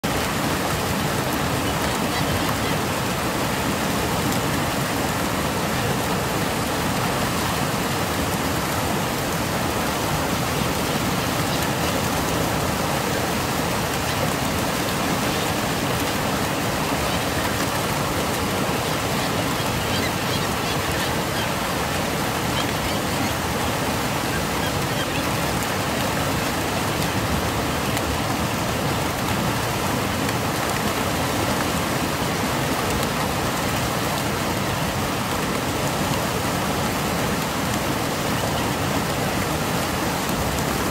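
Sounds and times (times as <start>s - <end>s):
white water rushing: 0.0s - 40.9s.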